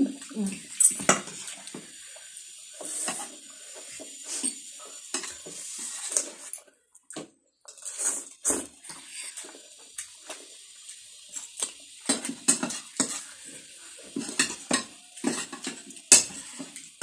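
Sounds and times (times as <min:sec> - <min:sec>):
cutlery scraping on plate: 0:04.3 - 0:06.5, 0:14.2 - 0:16.7.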